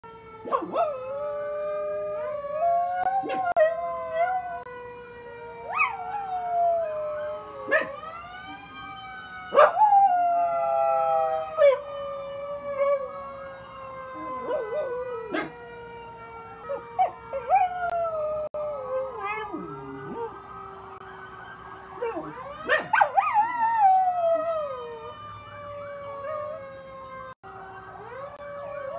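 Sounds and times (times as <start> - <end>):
fire truck siren: 0.0 - 28.9
dog howling: 0.5 - 4.6, 5.7 - 8.0, 9.5 - 11.9, 14.2 - 15.5, 16.7 - 20.3.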